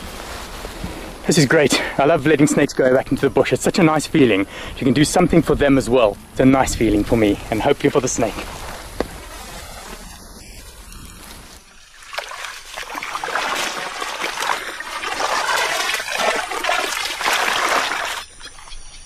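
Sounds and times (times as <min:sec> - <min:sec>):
water splashing and trickling: 0:11.4 - 0:19.0.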